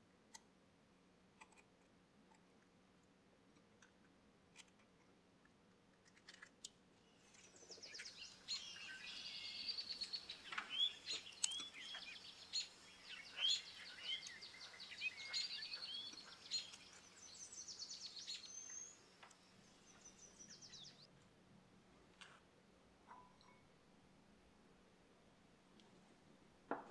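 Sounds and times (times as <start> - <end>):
small birds chirping: 6.1 - 21.2
soft clicks: 10.4 - 12.3, 13.1 - 17.2.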